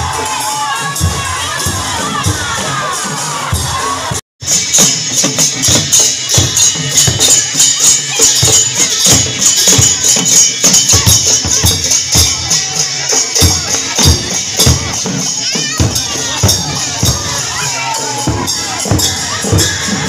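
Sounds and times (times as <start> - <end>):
barrel drums beaten: 0.0 - 20.0
bright metallic jingling: 4.5 - 20.0.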